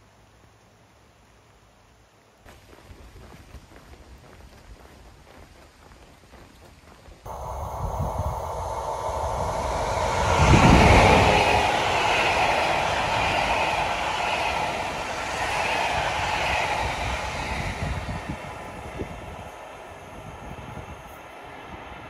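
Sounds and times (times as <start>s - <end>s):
train wheels on rails: 2.5s - 22.0s
electric train passing: 7.3s - 22.0s.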